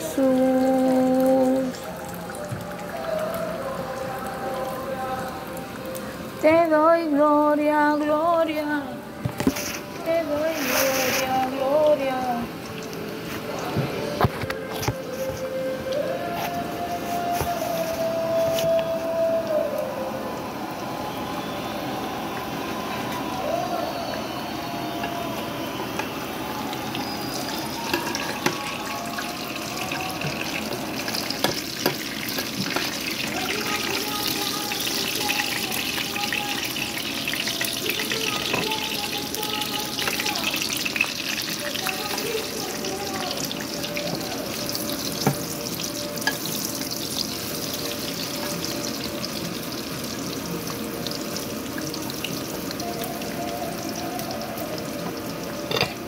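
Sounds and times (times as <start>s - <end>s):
faint song playing: 0.0s - 56.0s
fish cakes sizzling in oil: 26.0s - 56.0s.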